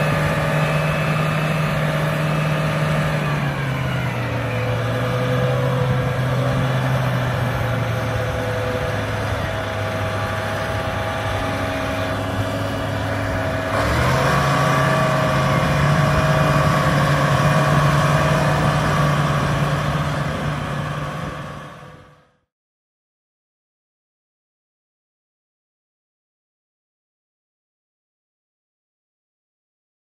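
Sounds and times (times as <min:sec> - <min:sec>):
diesel tractor engine running: 0:00.0 - 0:22.4.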